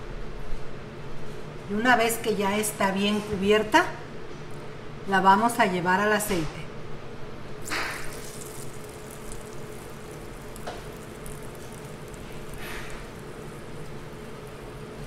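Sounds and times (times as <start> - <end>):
corn dogs sizzling in hot oil: 7.6 - 15.0.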